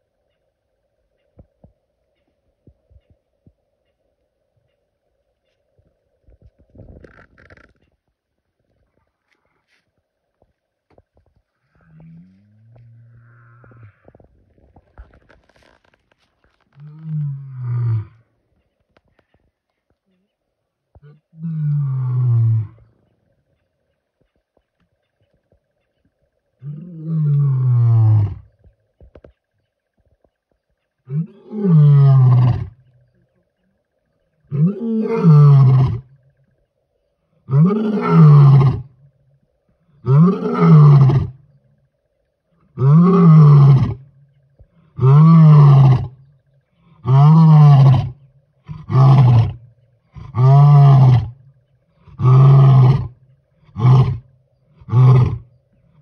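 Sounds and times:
lion roaring: 26.6 - 28.5, 31.1 - 32.9, 34.4 - 36.2, 37.4 - 39.0, 40.0 - 41.4, 42.7 - 44.1, 44.8 - 51.4, 52.0 - 55.5
lion grunting: 39.9 - 41.4, 44.7 - 56.0.

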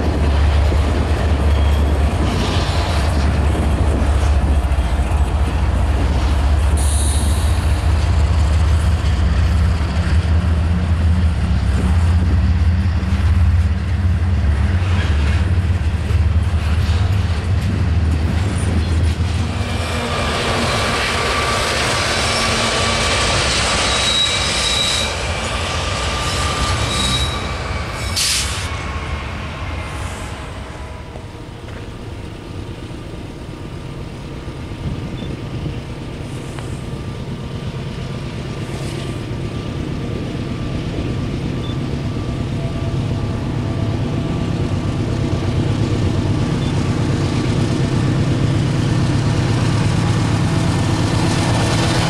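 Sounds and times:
train wheels squealing on rail: 0.0 - 10.2, 18.2 - 31.8, 35.0 - 36.8, 38.5 - 44.9, 46.2 - 47.1
freight train rumbling past: 0.0 - 52.0.

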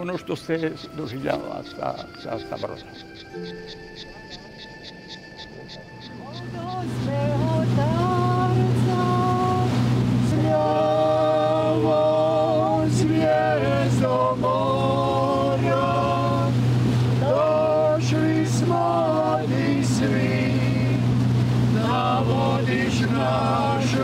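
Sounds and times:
boat engine droning: 0.0 - 24.0
person singing slow melody: 6.2 - 16.6, 17.2 - 24.0.

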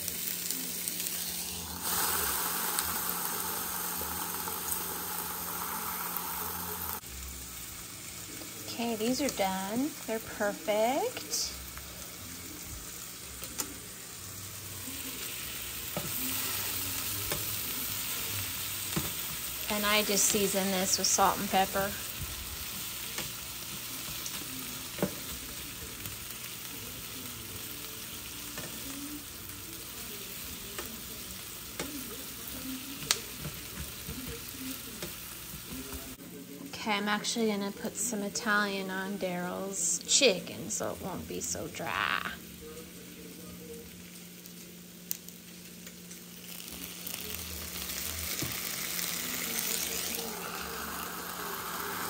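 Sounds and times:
vegetables sizzling in a frying pan: 0.0 - 52.0.

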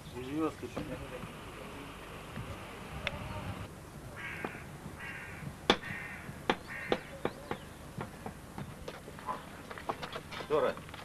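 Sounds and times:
crow cawing: 4.2 - 7.3
sharp knocks: 5.7 - 9.0.

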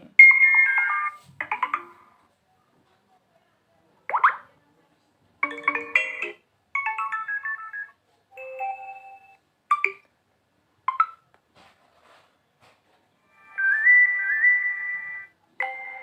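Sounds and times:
phone notification tones: 0.2 - 2.1, 5.4 - 10.0.

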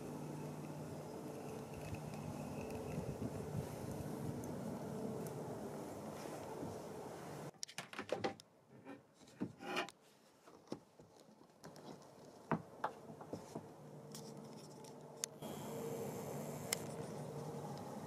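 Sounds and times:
steady background hiss: 0.0 - 7.6, 12.1 - 18.0
scrape: 8.8 - 10.4
handling clicks and rubs: 14.1 - 15.4.

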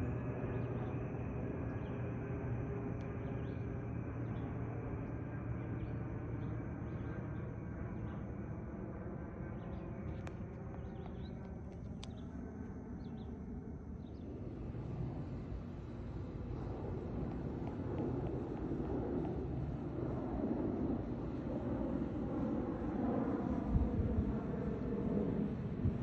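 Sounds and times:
distant jet airliner rumble: 0.0 - 26.0
faint clicks: 10.1 - 12.4.

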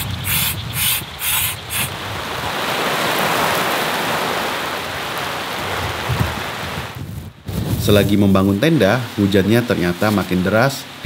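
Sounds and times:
hand air pump hissing: 0.0 - 1.9
wind rumble on microphone: 0.0 - 9.0
heavy rain: 1.6 - 11.0.

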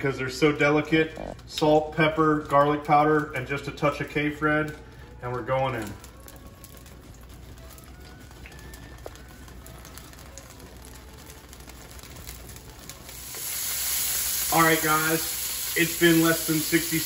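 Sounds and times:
full sizzle: 0.0 - 17.0
grease crackling and popping: 0.0 - 17.0
low hiss: 13.1 - 17.0.

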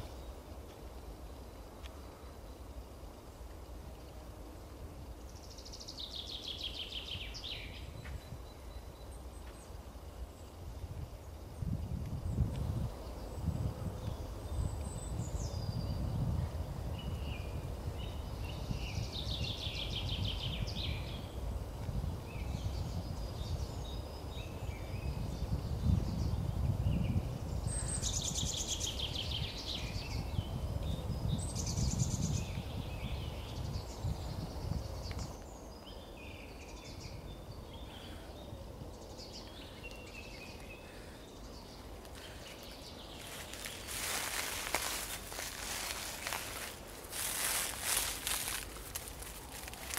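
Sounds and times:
songbirds trilling: 22.2 - 49.9.

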